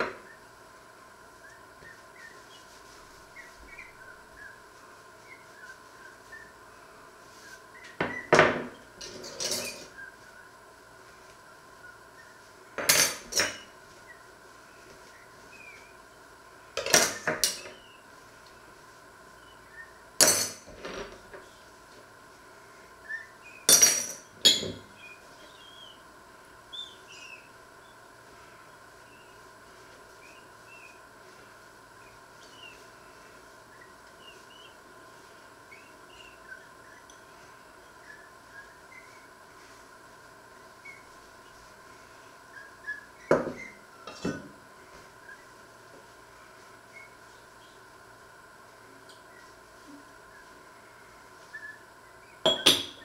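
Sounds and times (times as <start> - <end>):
faint high chirps: 24.5 - 39.8, 40.4 - 44.2, 45.0 - 53.0
cup and spoons clinking: 52.5 - 53.0.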